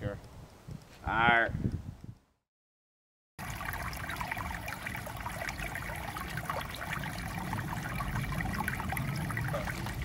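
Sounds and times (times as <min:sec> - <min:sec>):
stream burbling over stones: 0:03.4 - 0:10.0.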